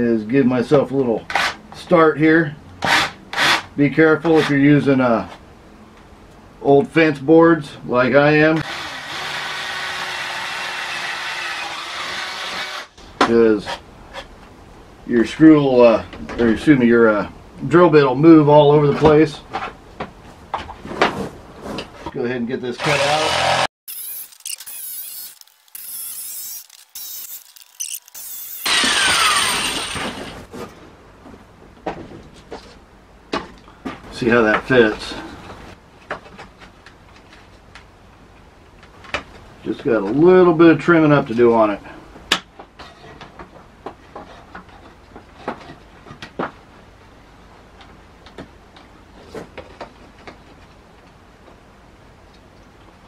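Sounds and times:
jigsaw cutting wood: 8.6 - 13.0, 22.8 - 30.4.

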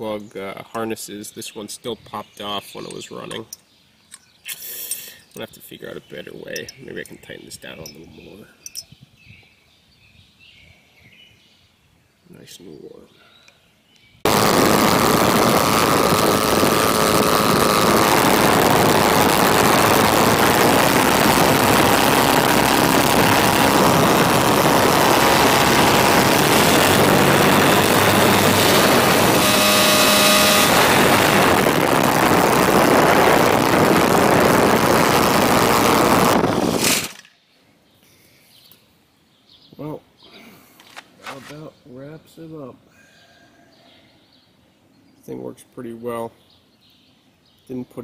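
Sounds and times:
model aircraft engine running: 14.3 - 37.2.

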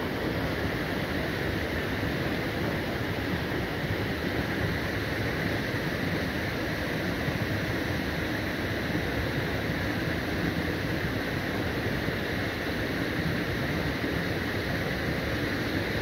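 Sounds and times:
water rushing through a channel: 0.0 - 16.0.

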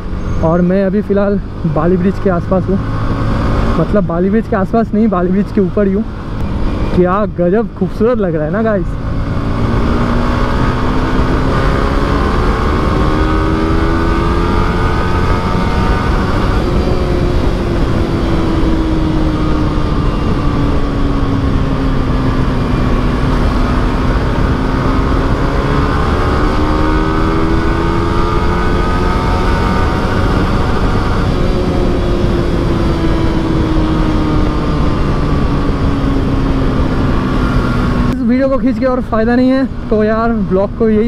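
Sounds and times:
motorcycle engine accelerating: 0.0 - 41.0
wind rush on microphone: 0.0 - 41.0.

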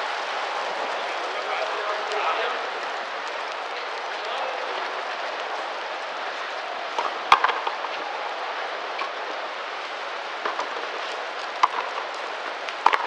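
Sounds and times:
background noise: 0.0 - 13.0
ball struck by rackets: 7.0 - 7.9, 10.4 - 10.8, 11.6 - 12.1.

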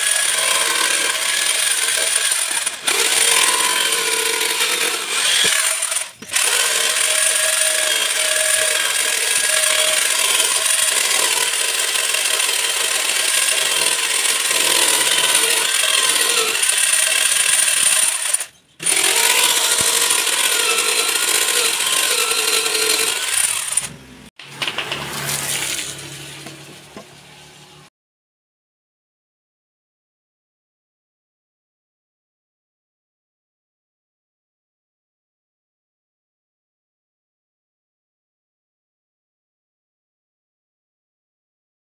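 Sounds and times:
electric drill boring wood: 0.0 - 24.0.

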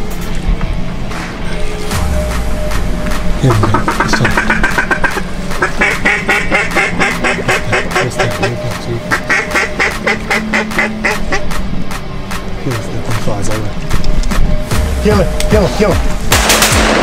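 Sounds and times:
background music: 0.0 - 17.0
duck quacking: 3.4 - 11.6.

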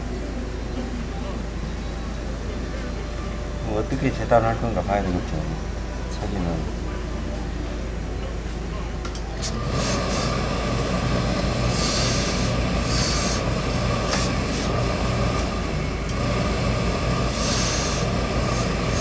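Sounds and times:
steady machine hum: 0.0 - 19.0
steam iron hissing: 9.4 - 19.0.

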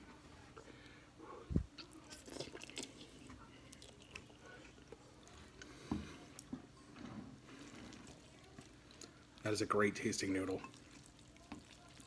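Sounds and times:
wet chewing smacks: 1.7 - 6.5, 10.7 - 12.0.

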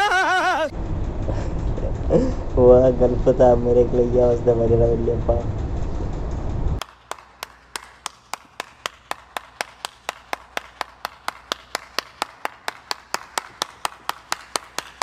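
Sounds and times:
person clapping: 6.8 - 15.0.

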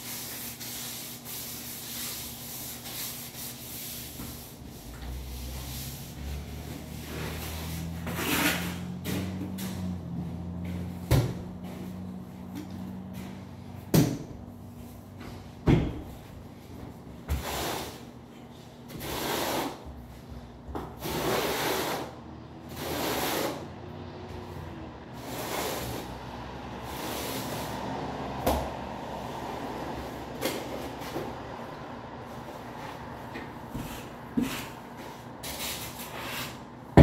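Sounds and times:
trowel scraping mortar: 21.0 - 22.1, 22.7 - 23.6, 35.4 - 36.7.

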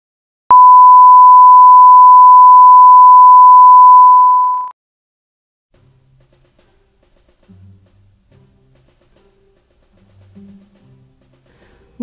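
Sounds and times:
steady electronic test tone: 0.5 - 4.7.

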